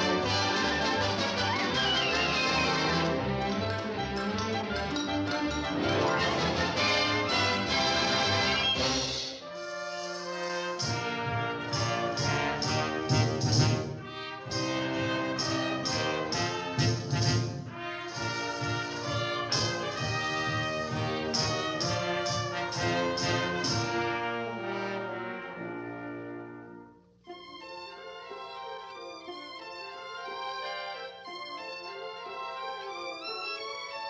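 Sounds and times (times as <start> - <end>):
orchestral cartoon music with brass: 0.0 - 34.0.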